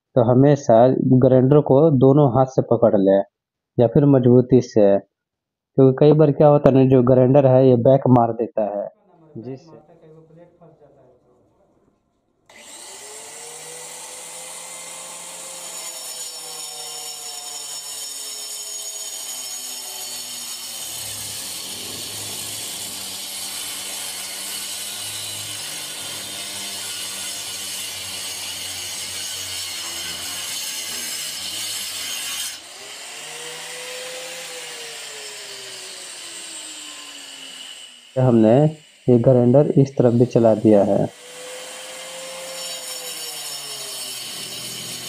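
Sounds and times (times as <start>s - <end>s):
angle grinder cutting brick: 12.5s - 45.0s.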